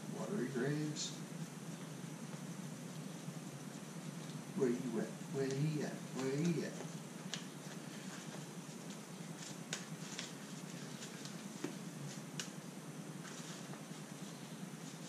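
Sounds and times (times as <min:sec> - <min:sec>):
cards being shuffled: 0:05.4 - 0:12.6, 0:13.2 - 0:15.0.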